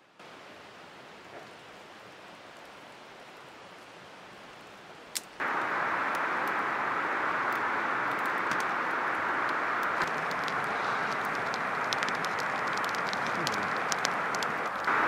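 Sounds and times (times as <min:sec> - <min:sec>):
campfire hissing and crackling: 0:00.2 - 0:15.0
fire snap: 0:05.1 - 0:15.0
river rushing: 0:05.4 - 0:15.0.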